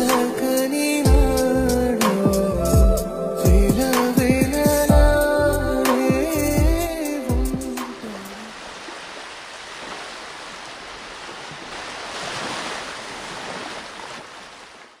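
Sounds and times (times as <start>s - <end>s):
sea surf washing onto beach: 7.1s - 15.0s.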